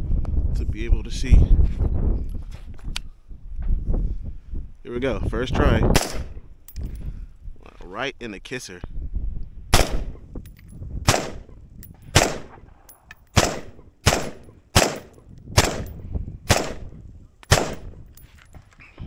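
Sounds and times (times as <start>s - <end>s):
rifle gunshots with echo: 5.9s - 6.4s, 9.7s - 10.2s, 11.0s - 18.0s.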